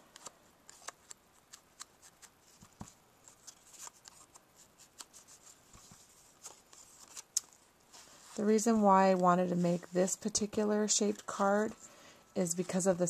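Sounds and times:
paper rustling: 0.1s - 10.5s.

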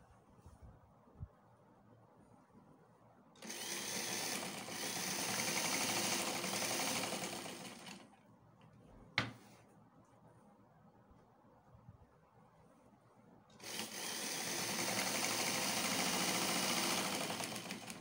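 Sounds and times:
sewing machine stitching: 3.4s - 8.1s, 13.6s - 18.0s.

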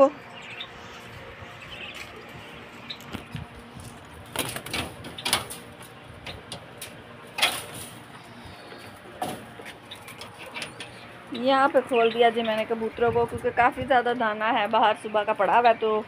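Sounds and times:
cage door rattling and clanking: 4.3s - 5.7s, 7.3s - 8.0s.

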